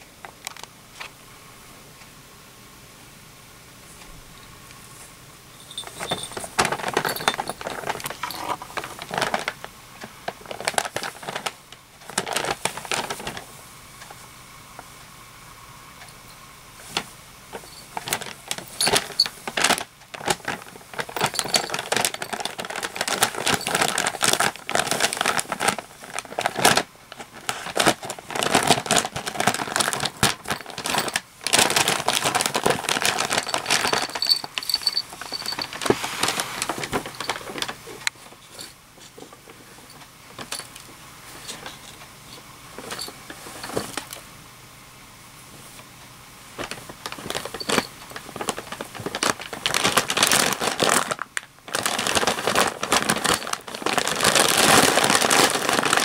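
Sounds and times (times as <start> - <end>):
small collar bells jingling: 5.5 - 8.6, 21.2 - 22.4, 33.3 - 35.8
paper bag crinkling and rustling: 5.5 - 14.1, 16.8 - 44.2, 46.6 - 56.0.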